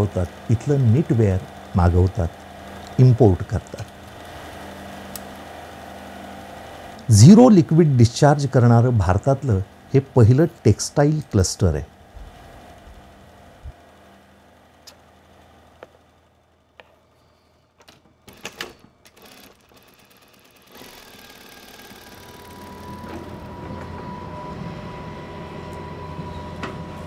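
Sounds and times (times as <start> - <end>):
machine hum: 0.0 - 27.0
scattered clicks: 0.2 - 3.0.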